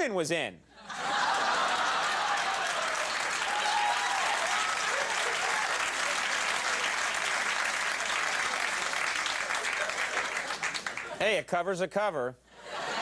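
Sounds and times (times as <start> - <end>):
people cheering: 0.9 - 11.2
audience applause: 1.1 - 11.2.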